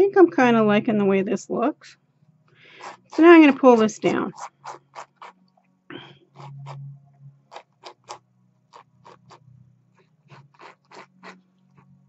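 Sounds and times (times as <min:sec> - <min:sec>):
palette knife scraping canvas: 0:02.7 - 0:06.9, 0:07.5 - 0:11.9.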